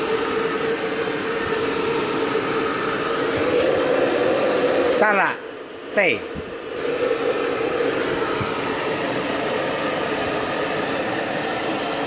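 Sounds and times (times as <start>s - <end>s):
hair dryer blowing: 0.0s - 12.0s.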